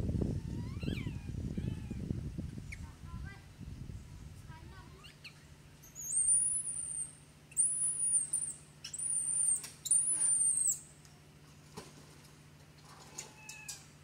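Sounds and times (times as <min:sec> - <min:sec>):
baby monkey crying: 0:00.4 - 0:02.0.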